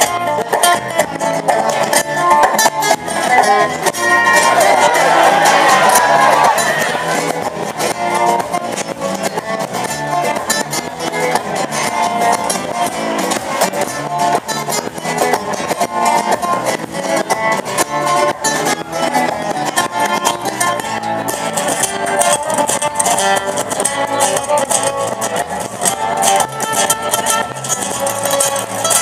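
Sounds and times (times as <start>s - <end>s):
plucked guitar music: 0.0s - 29.0s.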